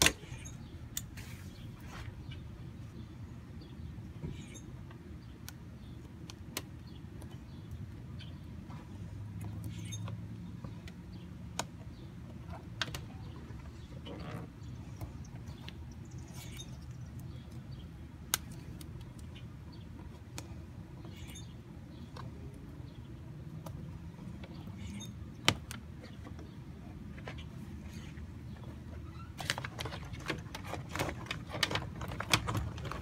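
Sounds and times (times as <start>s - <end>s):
faint bird chirps: 0.2s - 4.8s, 13.1s - 17.8s, 21.0s - 22.3s, 24.6s - 25.2s.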